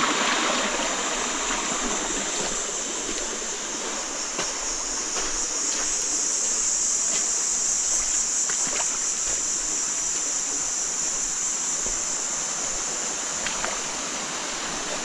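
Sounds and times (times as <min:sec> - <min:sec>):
river rushing over rocks: 0:00.0 - 0:05.9
faint splashes: 0:07.9 - 0:10.6, 0:11.2 - 0:15.0.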